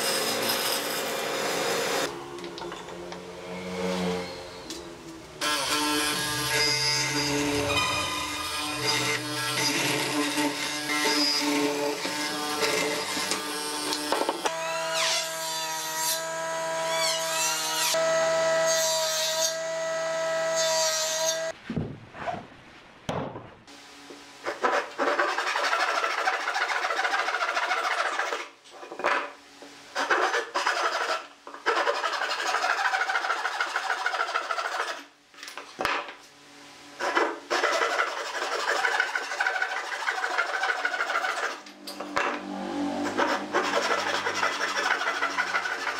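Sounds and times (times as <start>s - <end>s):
hand saw cutting wood: 24.5s - 28.5s, 30.0s - 35.1s, 37.0s - 41.8s, 42.4s - 45.9s.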